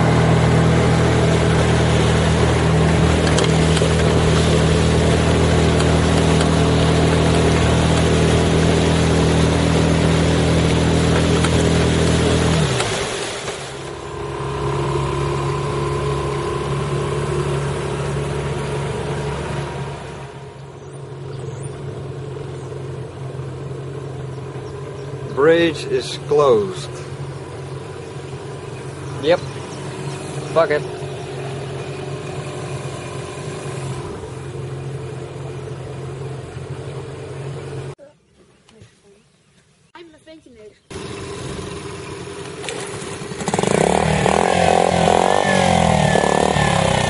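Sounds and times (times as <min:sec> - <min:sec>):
water and wind hiss: 0:00.0 - 0:20.4, 0:25.3 - 0:36.2
outboard motor running: 0:00.0 - 0:38.0, 0:40.8 - 0:47.0.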